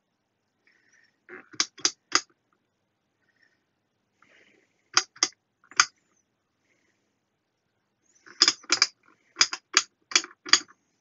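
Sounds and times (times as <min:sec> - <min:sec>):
rotary switch clicking: 0:01.6 - 0:02.3, 0:05.0 - 0:05.9, 0:08.3 - 0:10.7.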